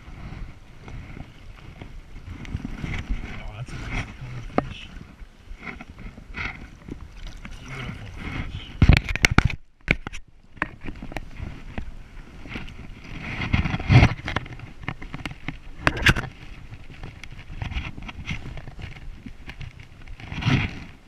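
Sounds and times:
fish splashing in water: 0:06.4 - 0:08.8.

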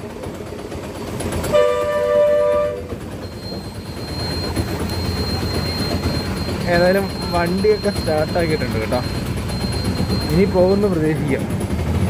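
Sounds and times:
engine starting and rumbling: 0:00.0 - 0:12.0
two-tone vehicle horn: 0:01.5 - 0:03.0.

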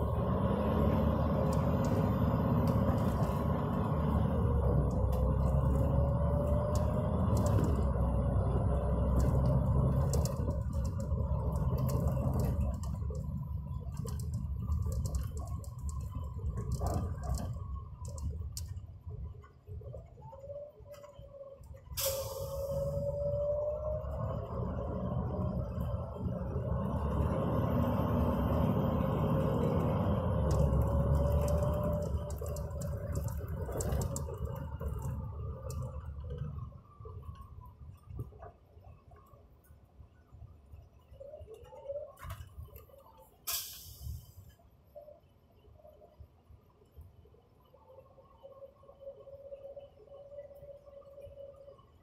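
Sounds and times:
bus rumbling: 0:00.0 - 0:52.0
sharp clicks and rattles: 0:01.3 - 0:03.8, 0:04.4 - 0:08.1, 0:08.8 - 0:19.6, 0:29.4 - 0:38.5.

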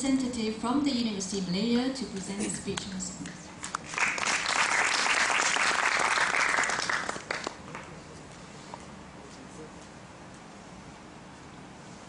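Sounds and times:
audience applauding: 0:03.8 - 0:08.0.

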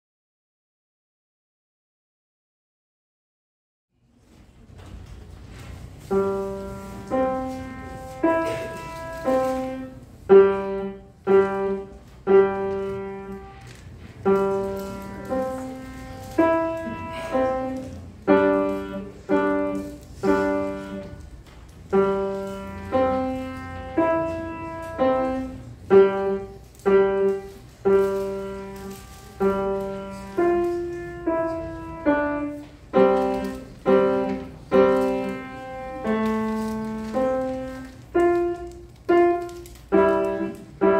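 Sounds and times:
grand piano slow tune: 0:05.7 - 0:40.9.

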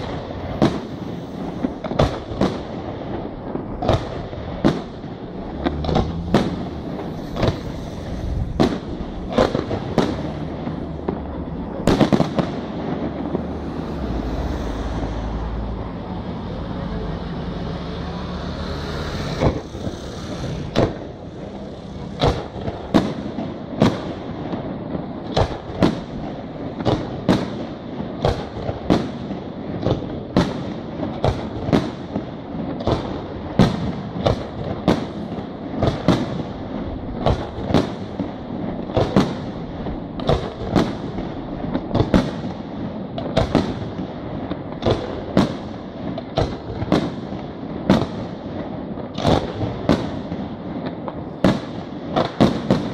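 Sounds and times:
firework shells bursting: 0:00.0 - 0:15.2, 0:18.7 - 0:27.1
echoing rumble: 0:00.0 - 0:25.0.

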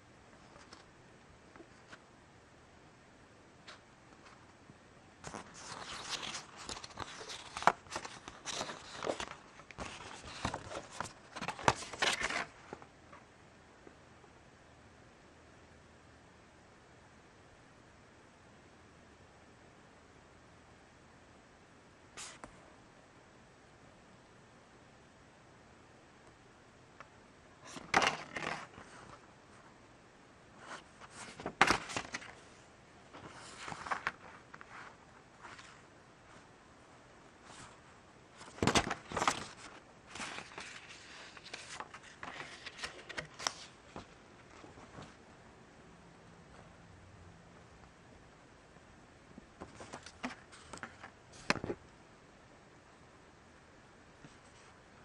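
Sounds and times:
paper leaflet rustling: 0:05.2 - 0:12.9, 0:27.6 - 0:29.7, 0:30.6 - 0:36.5, 0:37.4 - 0:45.2, 0:49.6 - 0:51.8.

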